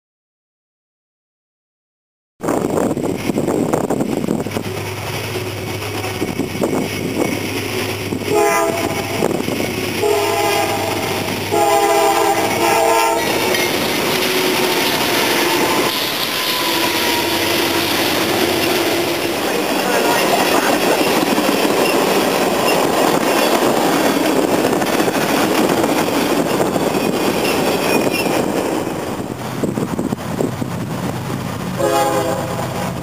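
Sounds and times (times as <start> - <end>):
locomotive engines droning: 3.4 - 33.0
train horn blasts: 8.3 - 9.2, 10.0 - 13.6, 14.4 - 19.4, 31.8 - 33.0
freight cars rumbling and clattering: 12.3 - 31.8.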